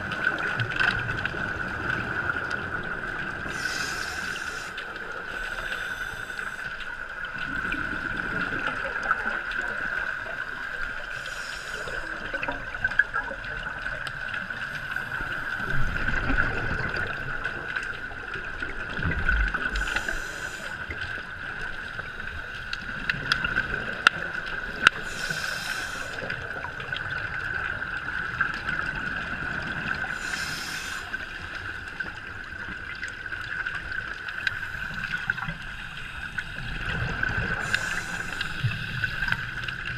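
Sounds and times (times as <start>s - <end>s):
faint clicks: 29.8s - 39.9s.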